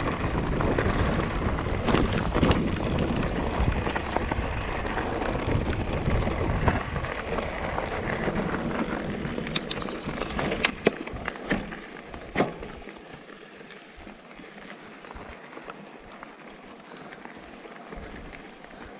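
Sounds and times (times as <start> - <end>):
wind buffeting microphone: 0.0 - 11.3
bike rumbling and rattling: 0.0 - 18.9
sharp clicks and knocks: 9.5 - 11.7.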